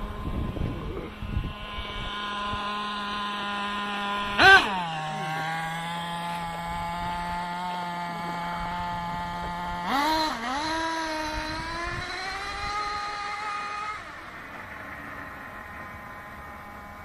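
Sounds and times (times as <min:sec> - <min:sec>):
nitro engine revving: 0:00.0 - 0:17.0.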